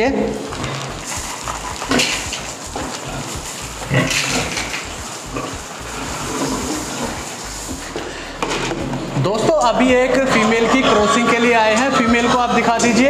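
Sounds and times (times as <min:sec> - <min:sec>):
boar grunting: 0:00.6 - 0:07.2.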